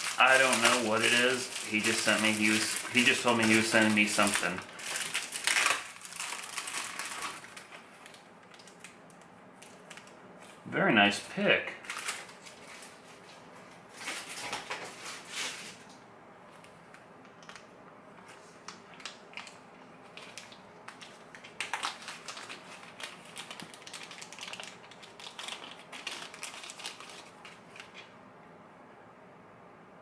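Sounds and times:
plastic bag crinkling: 0.0s - 10.2s, 11.8s - 13.2s, 18.3s - 28.1s.

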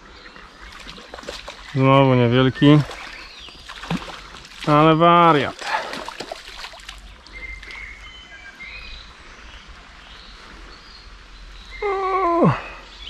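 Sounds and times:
small birds chirping: 0.0s - 13.0s
river water rushing: 2.6s - 7.2s.

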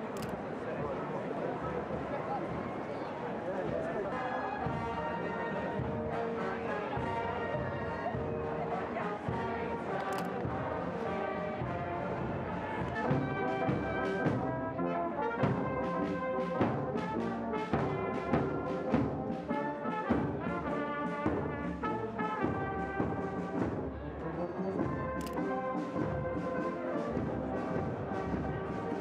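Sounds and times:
brass music: 4.0s - 29.0s
steady drum beat: 11.6s - 14.7s.

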